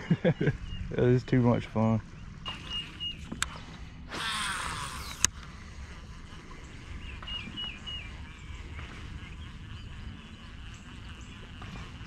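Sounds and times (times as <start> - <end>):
bird calls: 0.0 - 5.4, 6.0 - 12.0
fishing reel spool whirring: 0.4 - 12.0
reel click: 2.5 - 6.1.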